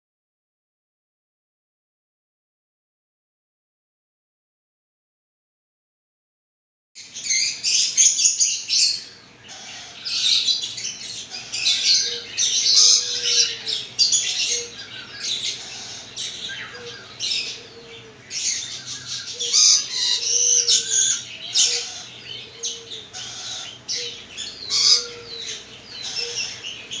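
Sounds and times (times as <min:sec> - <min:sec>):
parrot chick begging calls: 0:07.3 - 0:26.8.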